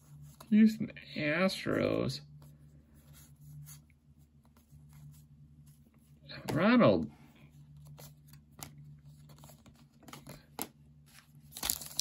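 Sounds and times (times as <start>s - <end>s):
cards flipping and sliding: 7.7s - 12.0s
foil wrapper crinkling: 11.5s - 12.0s.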